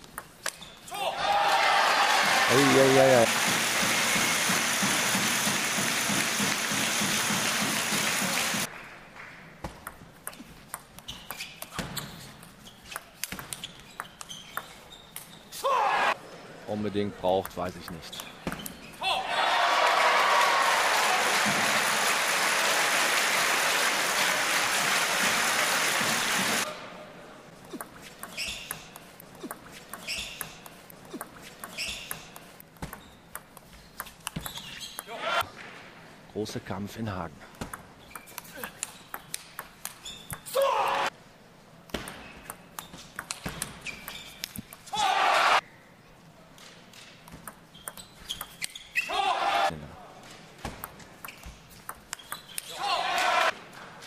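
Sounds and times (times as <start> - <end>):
crowd applauding and cheering: 1.2 - 8.9, 19.2 - 26.7
table tennis ball clicks: 27.7 - 35.1, 37.6 - 40.5, 41.9 - 44.9, 47.2 - 48.8, 50.7 - 52.7.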